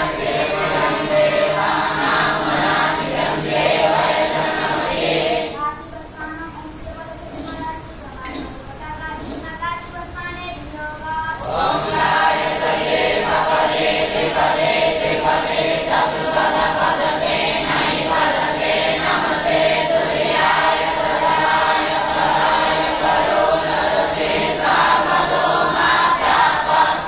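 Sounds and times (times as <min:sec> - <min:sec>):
boys chanting in unison: 0:00.0 - 0:06.1, 0:10.7 - 0:27.0.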